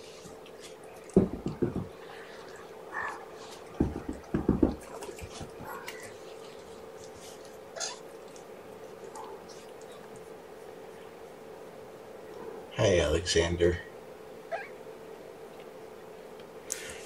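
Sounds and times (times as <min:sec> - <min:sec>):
steady low hum: 0:00.0 - 0:17.0
dull thumps: 0:01.1 - 0:02.2, 0:03.5 - 0:06.1
kittens mewing: 0:07.7 - 0:08.2, 0:14.4 - 0:14.8.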